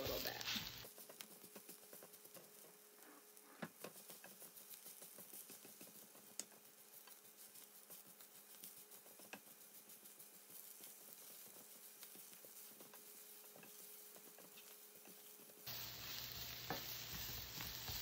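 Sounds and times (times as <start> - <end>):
vegetables sizzling: 0.0 - 18.0
spatula scraping a pan: 10.5 - 18.0.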